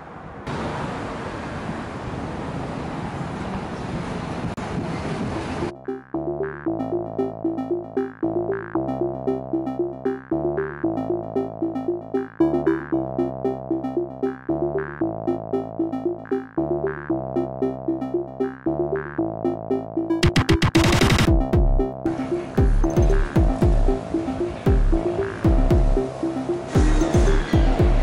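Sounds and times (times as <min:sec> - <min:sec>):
synthesizer music with bass line: 0:05.7 - 0:28.0.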